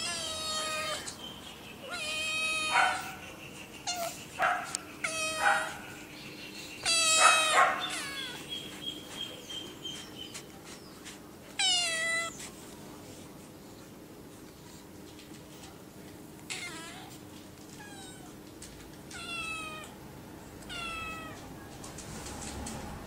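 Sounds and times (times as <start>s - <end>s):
kittens meowing: 0.0s - 1.2s, 1.8s - 3.2s, 3.8s - 4.2s, 5.0s - 6.0s, 6.8s - 8.5s, 11.6s - 12.4s, 17.7s - 18.4s, 19.1s - 20.0s, 20.6s - 21.5s.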